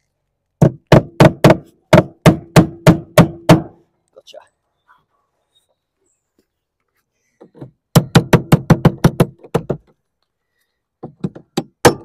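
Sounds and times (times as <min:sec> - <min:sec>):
hammer driving nails: 0:07.5 - 0:09.9, 0:11.0 - 0:12.0.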